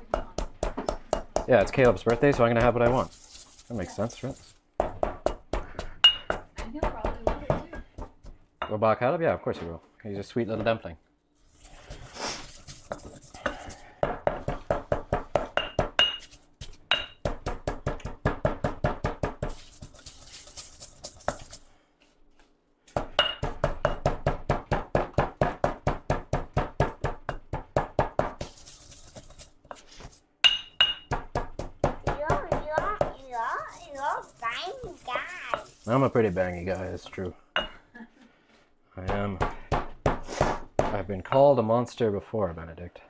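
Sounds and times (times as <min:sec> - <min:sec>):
stone pestle pounding in mortar: 0:00.1 - 0:03.2, 0:04.8 - 0:08.4, 0:12.9 - 0:19.6, 0:23.0 - 0:28.5, 0:30.5 - 0:33.2, 0:39.1 - 0:41.1.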